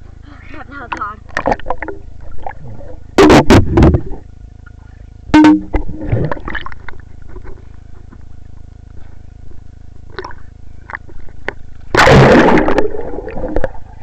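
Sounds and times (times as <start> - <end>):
faint steady hum: 0.0 - 14.0
water splashing and bubbling: 1.3 - 4.3, 5.4 - 7.4, 10.1 - 14.0.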